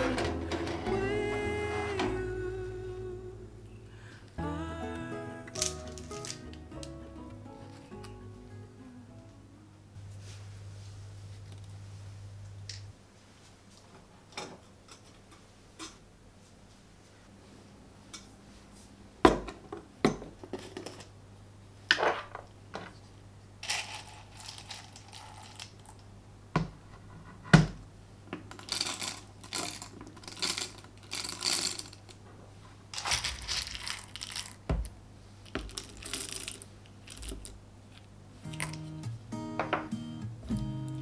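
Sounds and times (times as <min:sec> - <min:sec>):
coffee beans rattling into metal hopper: 0:23.6 - 0:25.9, 0:28.5 - 0:32.1, 0:33.0 - 0:34.6, 0:35.5 - 0:37.5.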